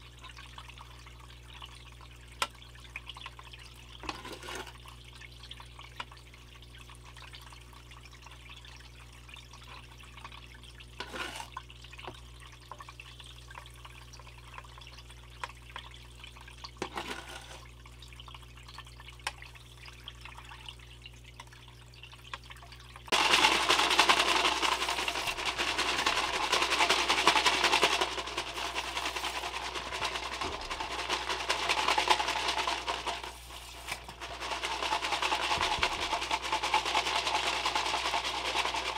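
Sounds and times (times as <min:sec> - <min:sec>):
water splashing and trickling: 0:00.0 - 0:23.2, 0:24.6 - 0:34.5.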